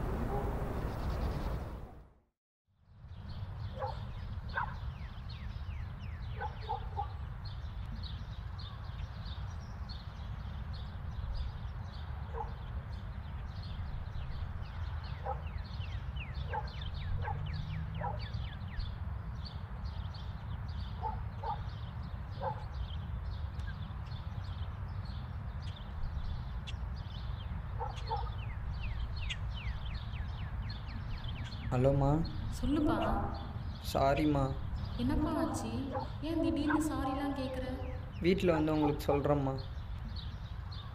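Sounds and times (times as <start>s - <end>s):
steady low rumble: 0.0s - 2.1s
small birds chirping: 0.1s - 1.8s, 2.9s - 40.9s.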